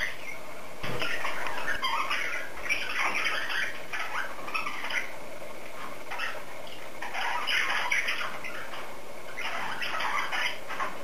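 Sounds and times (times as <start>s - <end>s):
cockatiel squawks and chirps: 1.0s - 5.1s, 6.1s - 6.4s, 7.0s - 11.0s.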